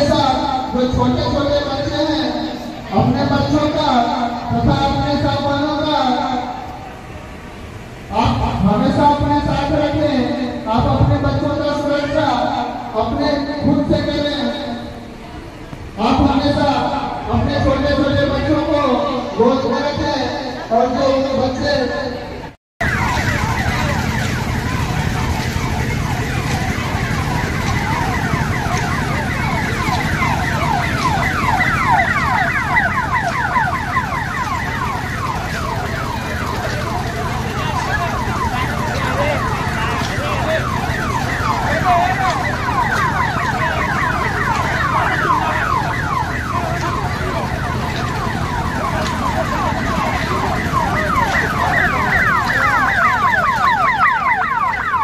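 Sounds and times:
low hum of fairground machinery: 0:00.0 - 0:55.0
electronic siren-like warbles: 0:22.8 - 0:55.0.

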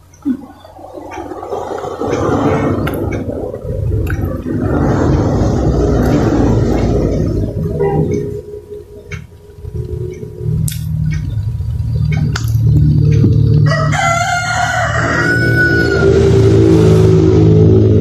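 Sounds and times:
rooster crowing: 0:13.4 - 0:18.0.

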